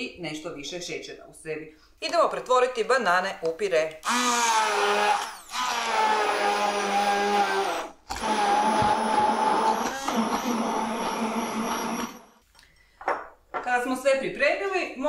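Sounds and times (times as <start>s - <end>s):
stick blender motor whining: 4.0s - 12.4s.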